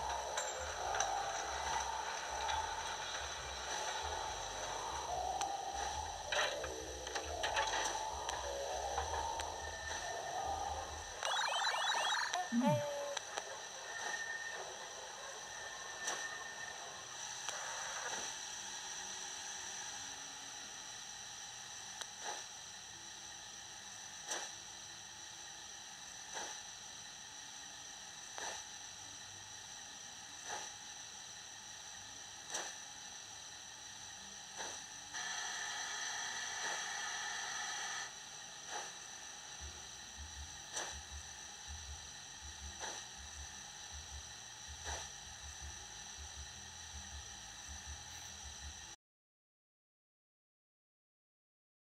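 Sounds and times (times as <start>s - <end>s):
model steam locomotive chuffs: 0.0s - 11.1s, 13.3s - 20.9s
steady speaker hiss: 0.0s - 11.2s, 14.7s - 49.0s.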